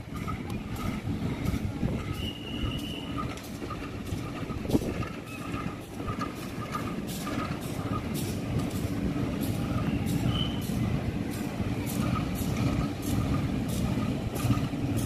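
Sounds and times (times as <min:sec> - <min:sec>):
train rumbling on rails: 0:00.0 - 0:15.0
high wheel squeal: 0:02.1 - 0:08.1, 0:09.6 - 0:10.8.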